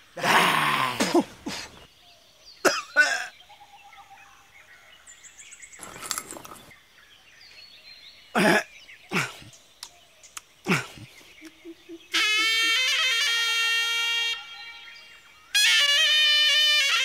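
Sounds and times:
birds chirping faintly: 0.0s - 16.2s
man sobbing and coughing: 0.2s - 1.8s, 2.6s - 3.3s, 8.4s - 9.5s, 10.7s - 12.8s.

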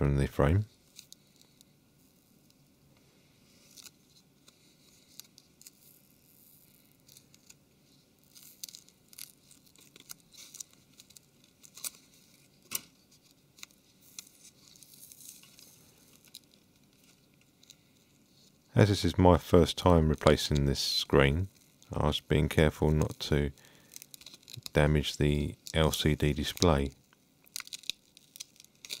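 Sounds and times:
adhesive crackling and tearing: 8.2s - 17.8s, 21.5s - 29.0s.

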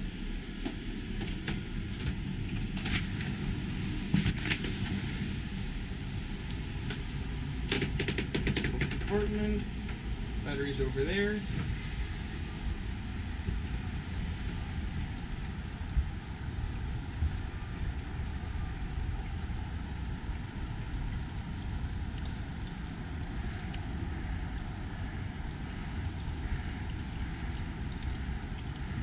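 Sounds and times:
wind buffeting microphone: 11.1s - 29.0s.

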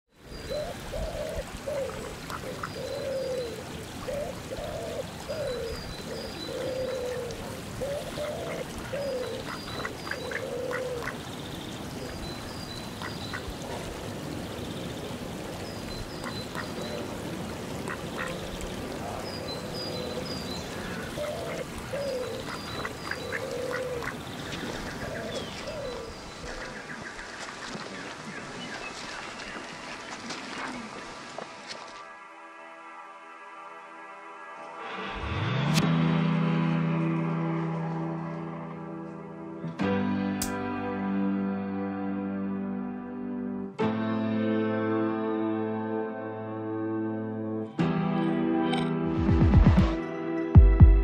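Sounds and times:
lapping water: 0.6s - 32.0s
ducks quacking: 8.0s - 11.2s, 17.8s - 19.3s, 20.7s - 27.9s.

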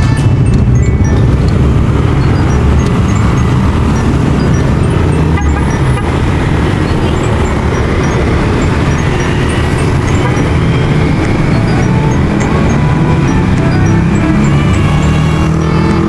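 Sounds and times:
motor scooters and cars passing: 0.0s - 16.0s.

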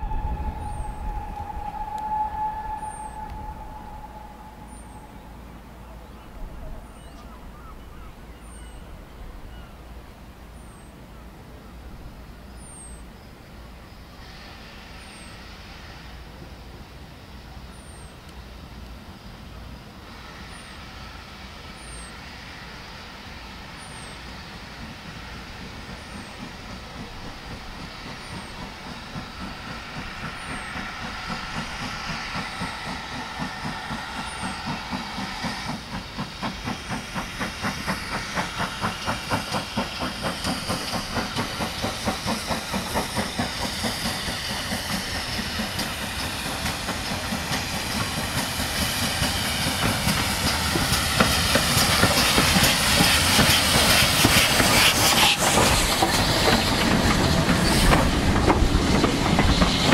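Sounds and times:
steam hissing: 0.0s - 7.6s, 9.4s - 59.9s
steam locomotive exhaust beats: 0.0s - 59.9s.

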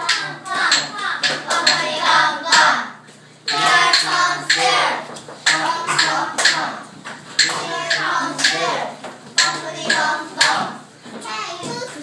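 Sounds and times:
children clapping hands: 0.0s - 2.8s, 3.5s - 4.8s, 5.5s - 6.7s, 7.4s - 8.8s
children singing: 0.0s - 10.9s.

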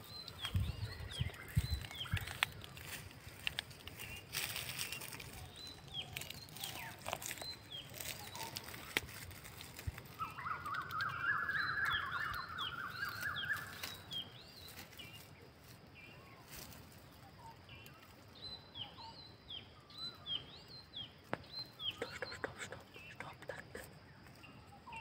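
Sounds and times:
birds chirping: 0.0s - 25.0s
rapid chattering bird trill: 5.0s - 14.1s, 21.7s - 23.9s.

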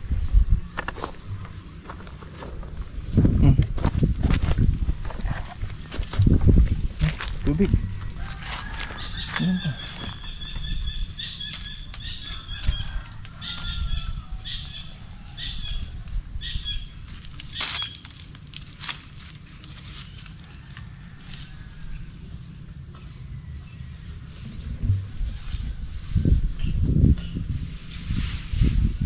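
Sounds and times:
low rumble: 0.0s - 8.2s
insect drone: 0.0s - 29.0s.

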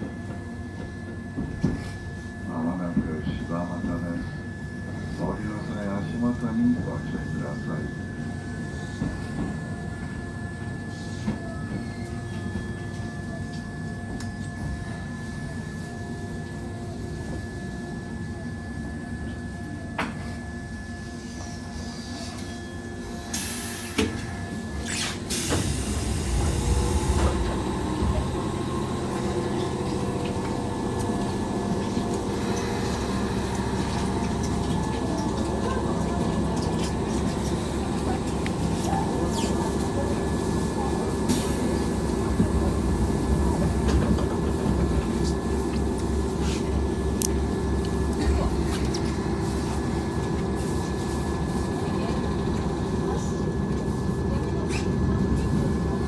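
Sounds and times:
train wheels rumbling: 25.3s - 53.7s.

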